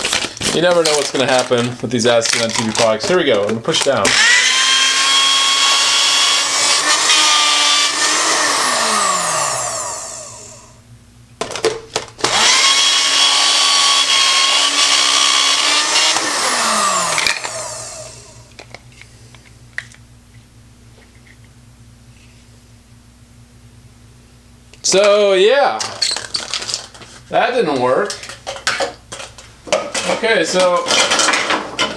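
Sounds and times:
blender motor whine: 4.0s - 10.8s, 12.2s - 18.6s.

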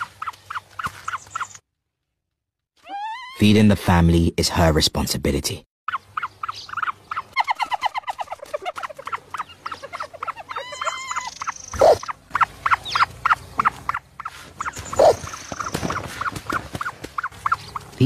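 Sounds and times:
chicks chirping: 5.9s - 18.0s.

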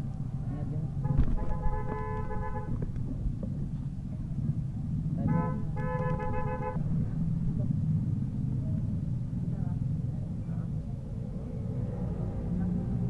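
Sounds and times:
low rumble: 0.0s - 13.0s
vehicle horn honking: 1.0s - 2.8s, 5.2s - 6.8s.

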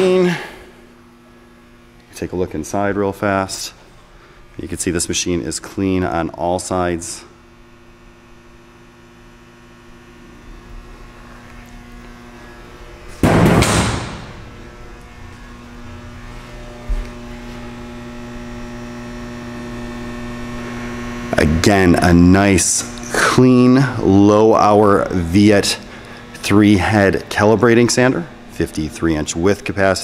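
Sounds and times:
electrical hum of sander: 0.0s - 30.0s
sudden loud noise: 13.2s - 14.8s.

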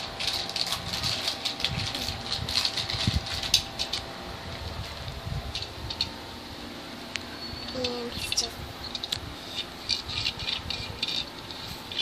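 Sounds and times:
plastic wrapper crinkling: 0.0s - 4.0s.

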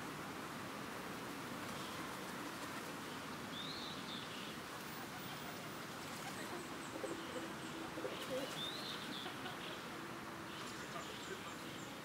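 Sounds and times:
background hiss: 0.0s - 12.0s
low cooing call: 6.2s - 10.0s.

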